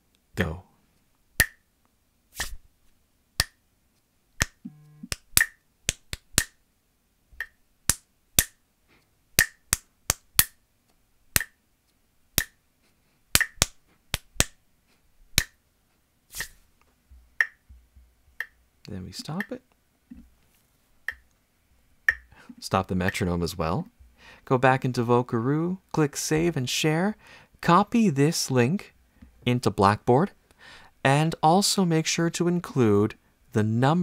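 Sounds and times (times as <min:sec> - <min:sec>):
hand claps in rhythm: 0:04.4 - 0:06.6, 0:07.4 - 0:08.6, 0:09.4 - 0:10.6, 0:13.4 - 0:14.6, 0:15.4 - 0:15.6
metronome clicking: 0:04.4 - 0:06.6, 0:07.4 - 0:08.6, 0:11.4 - 0:11.6, 0:17.4 - 0:17.7, 0:18.4 - 0:18.6, 0:21.1 - 0:21.3, 0:22.1 - 0:22.3, 0:23.0 - 0:23.3.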